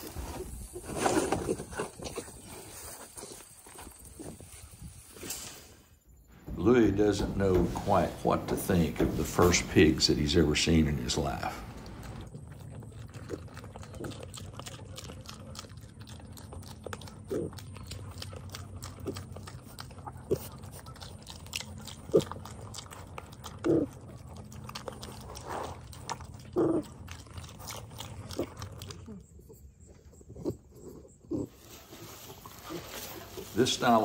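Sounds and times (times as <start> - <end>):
piglets crunching feed: 0.0 - 5.0, 6.4 - 34.0
piglet grunts: 16.7 - 27.2.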